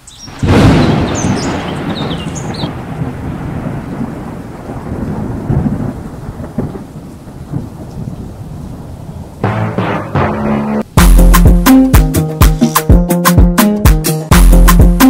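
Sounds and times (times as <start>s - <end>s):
rain: 0.0s - 9.5s
rolling thunder: 0.3s - 11.0s
music: 9.4s - 15.0s.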